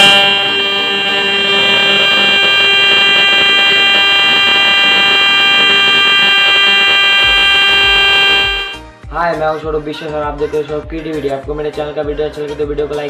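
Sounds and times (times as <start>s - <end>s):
electric horn buzzing: 0.0s - 8.8s.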